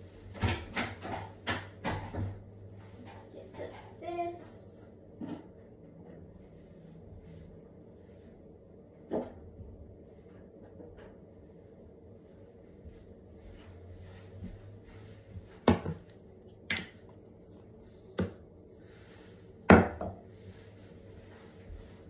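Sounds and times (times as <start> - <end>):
plastic bottles knocking on countertop: 15.6 - 16.0, 19.7 - 20.2.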